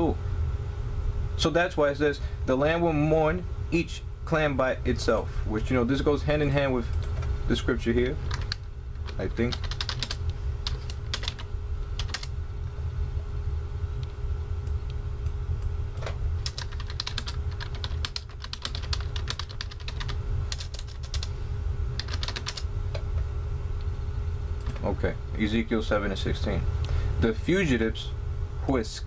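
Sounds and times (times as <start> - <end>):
steady low hum: 0.0 - 29.0
typing on computer keyboard: 8.3 - 12.3, 16.4 - 21.3, 22.0 - 22.6.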